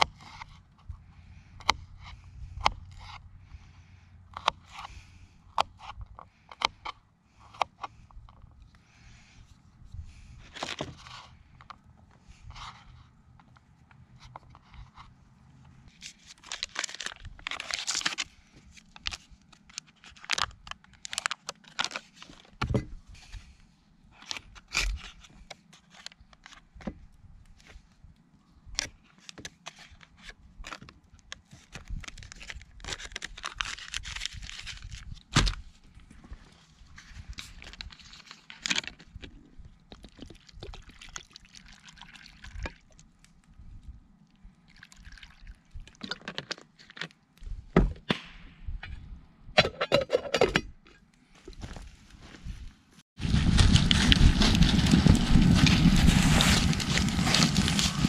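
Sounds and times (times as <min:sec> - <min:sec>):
foil wrapper crinkling: 0:16.0 - 0:22.6, 0:31.6 - 0:35.2, 0:53.2 - 0:58.0
water poured into pot: 0:40.8 - 0:42.6, 0:44.7 - 0:45.6.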